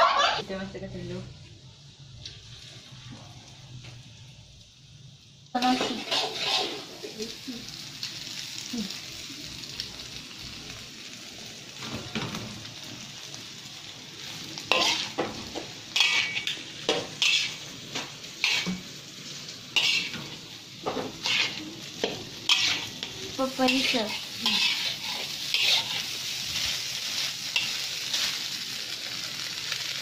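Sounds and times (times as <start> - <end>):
rice sizzling in a wok: 0.0 - 30.0
metal spatula scraping a pan: 5.6 - 7.1, 14.7 - 18.8, 19.7 - 28.4.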